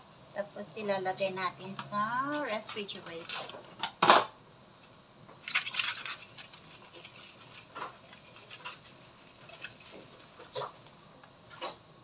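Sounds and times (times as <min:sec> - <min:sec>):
plastic cling wrap crinkling: 0:01.6 - 0:03.8, 0:04.8 - 0:11.6.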